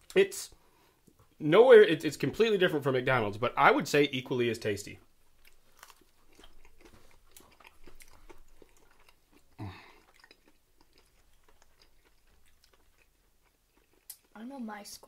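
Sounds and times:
person chewing food: 0:05.1 - 0:14.4.

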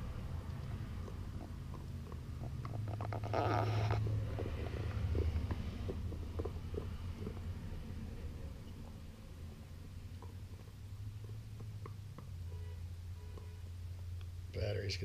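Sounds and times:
puppy gnawing on chew toy: 0:00.0 - 0:12.6
low steady rumble: 0:00.0 - 0:15.0
teeth clicking on chew: 0:00.3 - 0:09.0, 0:09.9 - 0:12.4.

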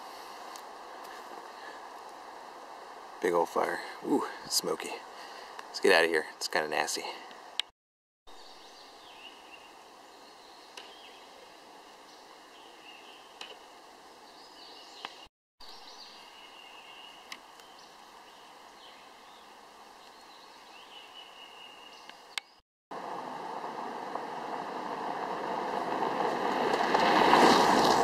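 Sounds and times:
steady low hiss: 0:00.0 - 0:07.6, 0:08.4 - 0:22.4
faint bird chirps: 0:08.3 - 0:11.4, 0:14.2 - 0:22.6.

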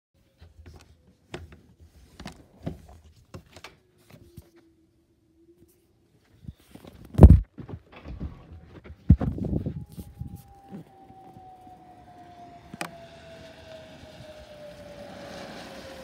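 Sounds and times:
loud thump: 0:07.2 - 0:07.5.

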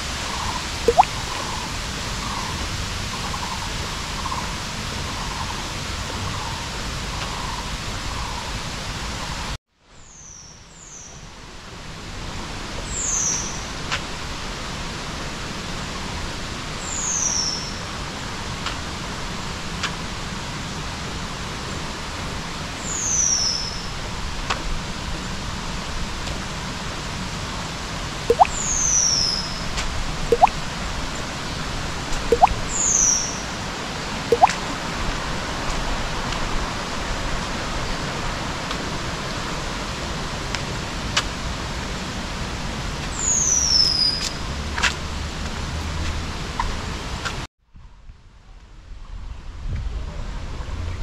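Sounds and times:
bird chirping and whistling: 0:28.3 - 0:28.8.

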